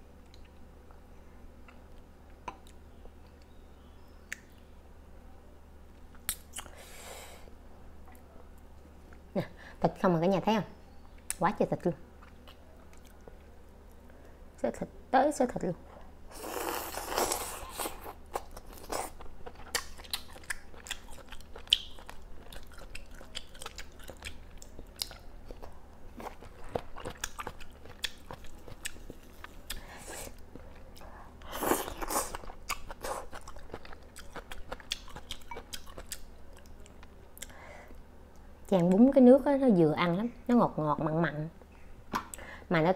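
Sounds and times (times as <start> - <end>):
chewing and biting meat: 17.3 - 25.6, 26.2 - 29.8, 31.8 - 36.2.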